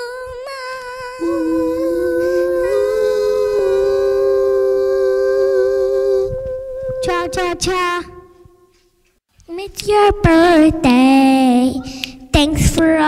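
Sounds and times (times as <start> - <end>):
two voices singing in harmony: 0.0 - 8.5.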